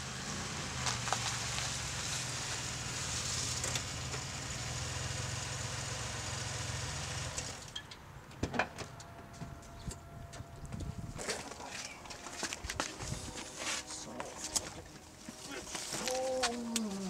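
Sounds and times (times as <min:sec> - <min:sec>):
car engine idling: 0:00.0 - 0:07.8.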